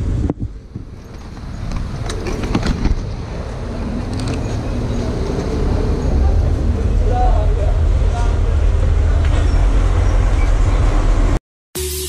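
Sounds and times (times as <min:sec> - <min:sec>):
street traffic rumbling: 0:00.0 - 0:11.4
scooters passing: 0:00.8 - 0:07.0.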